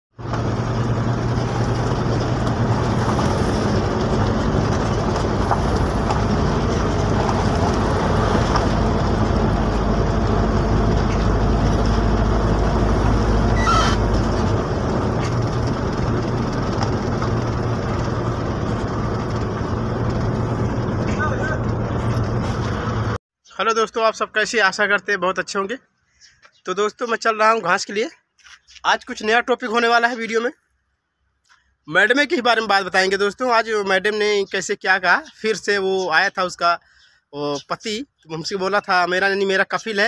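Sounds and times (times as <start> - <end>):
vehicle engine and tyre rumble: 0.1 - 23.2
brief squeak: 13.5 - 14.2.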